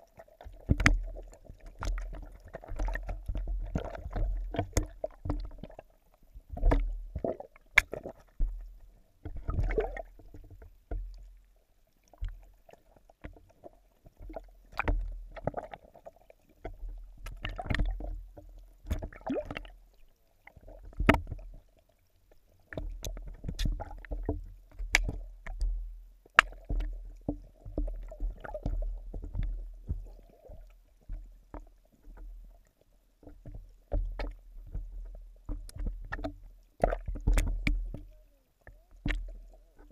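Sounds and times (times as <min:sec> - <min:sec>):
muffled underwater water sloshing: 0:00.0 - 0:39.9.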